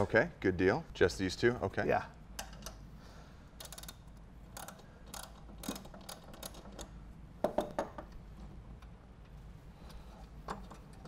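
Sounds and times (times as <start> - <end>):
ratchet wrench clicking: 3.6 - 6.9.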